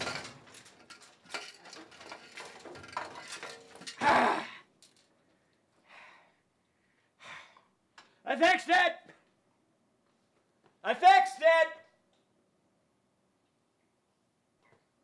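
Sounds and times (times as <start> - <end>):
knocks and clinks in washing machine: 0.0 - 4.0
man crying out: 4.0 - 4.6.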